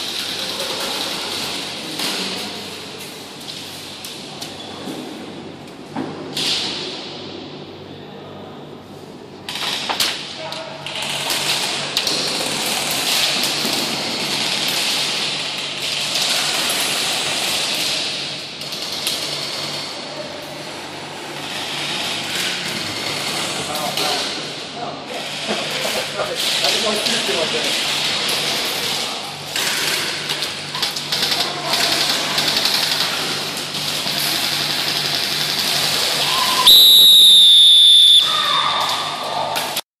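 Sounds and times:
referee's whistle blast: 36.4s - 38.4s.

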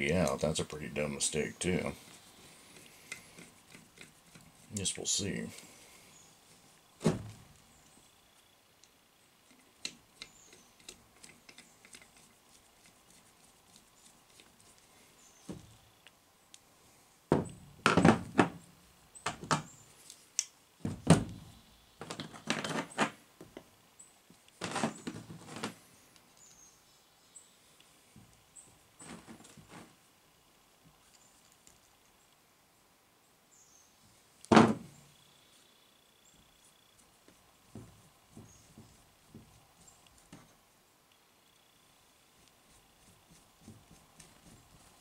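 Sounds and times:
heavy thunks on plastic liner: 7.0s - 7.5s, 17.3s - 18.6s, 20.8s - 22.2s, 34.5s - 35.0s.

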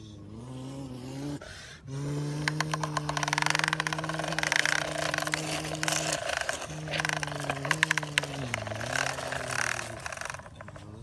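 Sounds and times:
steady low hum: 0.0s - 11.0s
gritty crackling of sand and plastic: 2.4s - 11.0s.

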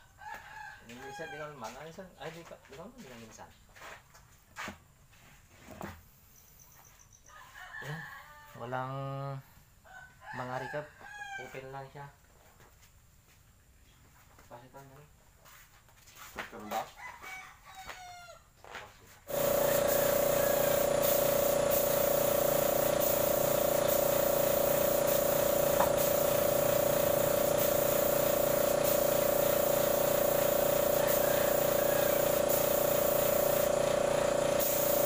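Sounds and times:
air compressor humming: 19.3s - 35.0s
spray gun hissing: 19.3s - 35.0s.

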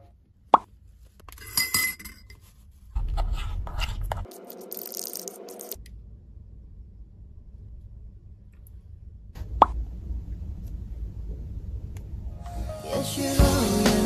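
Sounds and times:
faint low hum: 5.8s - 12.6s.

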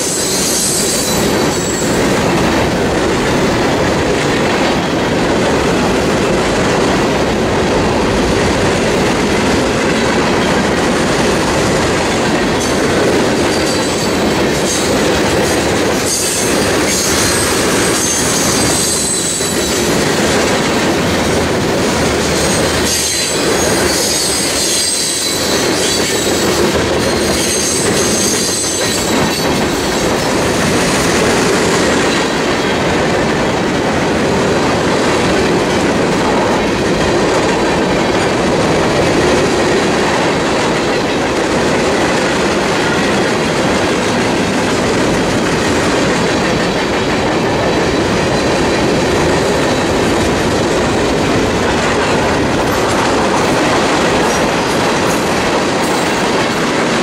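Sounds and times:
high-pitched wheel squeal: 0.0s - 2.0s, 16.1s - 19.9s, 22.4s - 26.4s, 27.1s - 29.2s
freight train wheels rumbling on rail: 0.0s - 57.0s.

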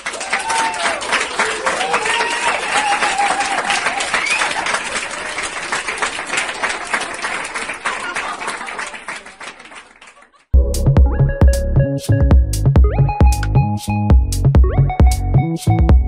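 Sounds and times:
crowd applauding: 0.0s - 10.6s.

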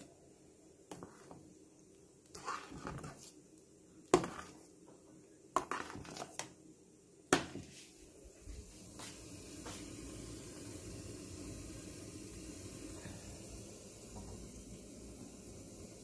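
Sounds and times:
steam hissing: 8.5s - 16.0s.

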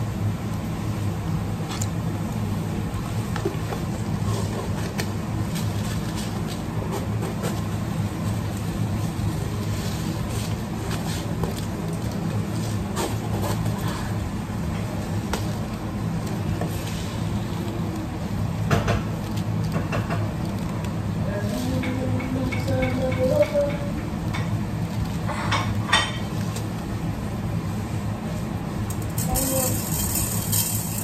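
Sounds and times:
rice grains scooped in plastic jar: 29.1s - 31.0s.

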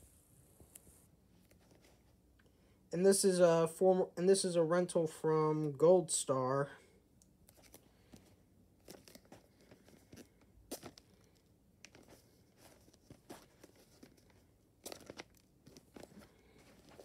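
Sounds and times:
paper card handled: 7.4s - 17.0s
rustling and scraping of packaging: 7.5s - 17.0s.

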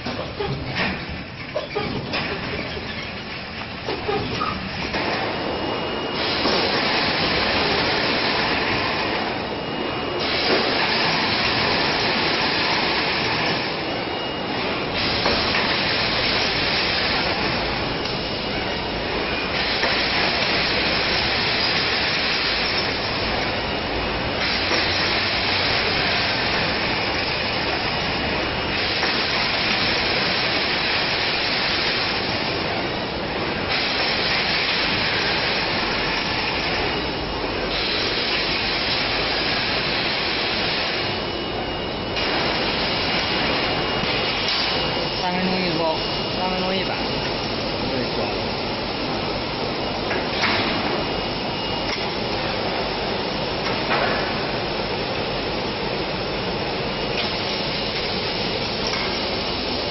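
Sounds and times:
loud hissing rushing noise: 24.3s - 50.0s.

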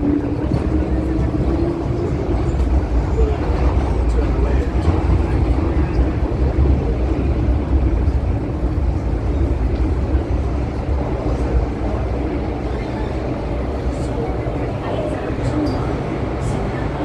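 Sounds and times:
train wheels rumbling on track: 0.0s - 17.0s.

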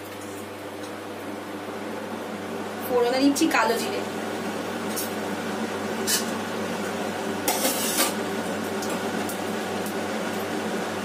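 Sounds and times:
low machine-like hum: 0.0s - 11.0s.

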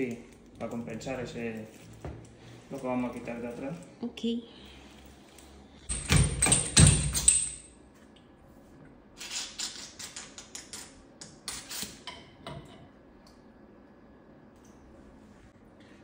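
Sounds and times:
tools and metal parts clattering: 5.8s - 7.8s.

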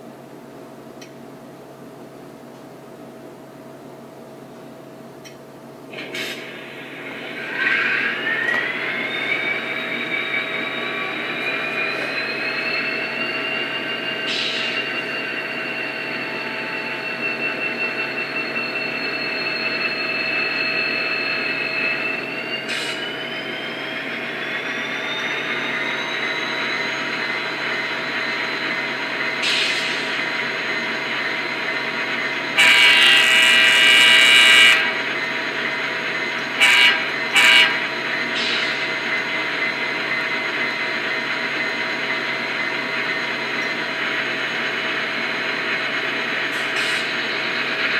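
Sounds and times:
model locomotive diesel engine sound: 0.0s - 47.9s
whine climbing in pitch: 6.4s - 47.9s
locomotive horn blast: 32.6s - 35.0s, 36.6s - 37.9s.

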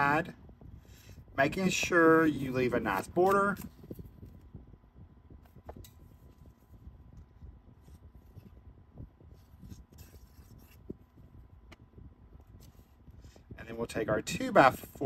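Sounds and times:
paper rubbing and rustling: 9.2s - 11.3s.

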